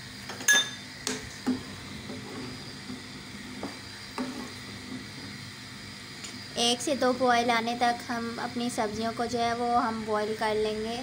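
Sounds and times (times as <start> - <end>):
metal spoon stirring in a pot: 2.0 - 5.4.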